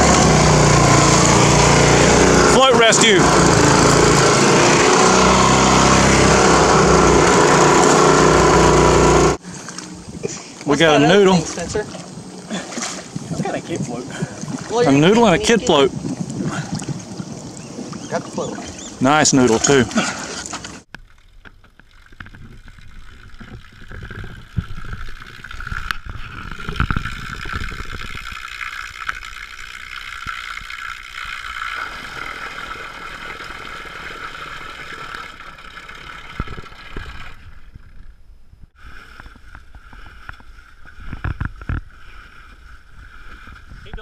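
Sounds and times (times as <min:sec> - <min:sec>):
trolling motor whine: 0:00.0 - 0:14.0
propeller churning water: 0:00.0 - 0:38.0.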